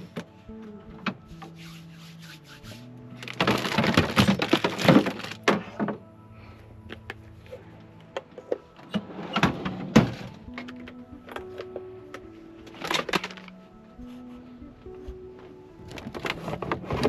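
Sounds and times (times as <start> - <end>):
soft background music: 0.0 - 17.0
items clattering: 3.2 - 6.1, 8.1 - 13.6, 15.8 - 17.0.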